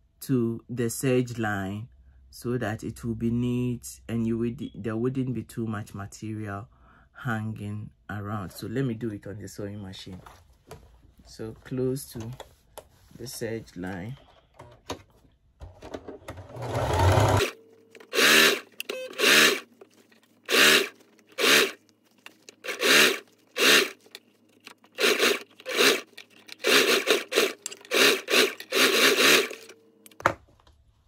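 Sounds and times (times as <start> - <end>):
sewing machine stitching: 16.4 - 19.7, 20.5 - 21.8, 22.6 - 24.1, 24.9 - 29.8.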